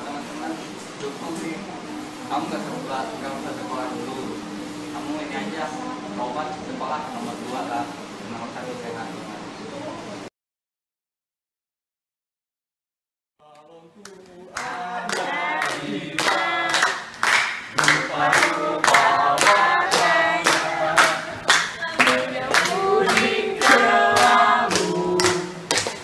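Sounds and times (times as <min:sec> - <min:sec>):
people clapping along: 0:13.4 - 0:26.0
group singing: 0:14.1 - 0:26.0.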